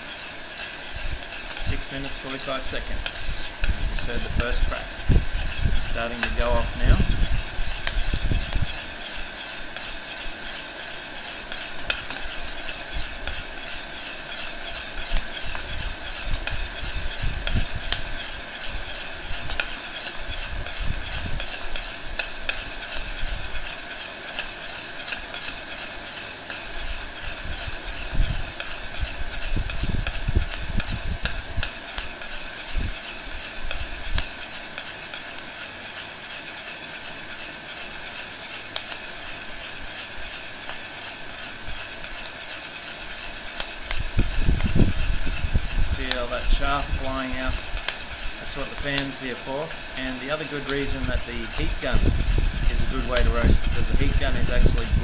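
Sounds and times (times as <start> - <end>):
heat gun blowing: 0.0 - 10.7
coffee beans popping: 0.0 - 55.0.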